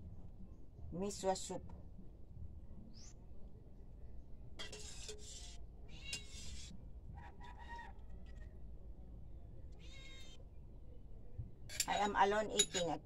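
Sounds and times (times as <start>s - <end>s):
cat meowing: 9.7s - 10.4s.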